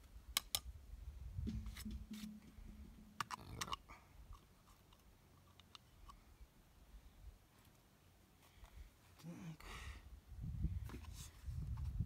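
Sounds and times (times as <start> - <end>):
faint low hum: 1.4 - 4.4.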